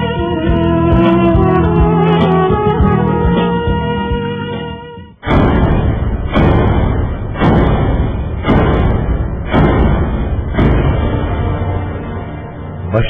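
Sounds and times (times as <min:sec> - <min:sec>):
heavy booming hits: 0:05.2 - 0:13.0.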